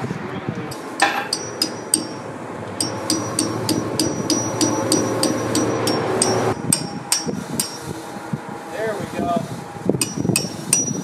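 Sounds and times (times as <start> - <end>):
hammer tapping steel punch: 0.7 - 7.9, 10.0 - 11.0
steady hum: 0.7 - 11.0.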